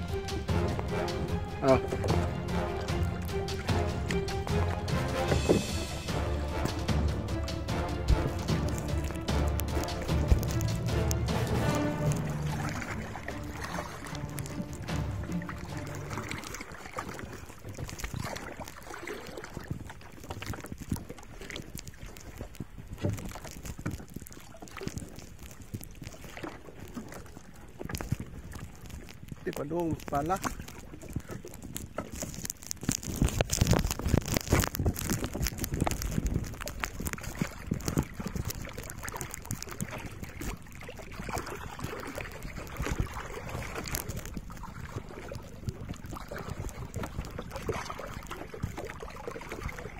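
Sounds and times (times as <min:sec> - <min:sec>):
water splashing against boat hull: 0:00.0 - 0:49.9
wind on microphone: 0:07.7 - 0:49.9
wind buffeting microphone: 0:33.0 - 0:38.8.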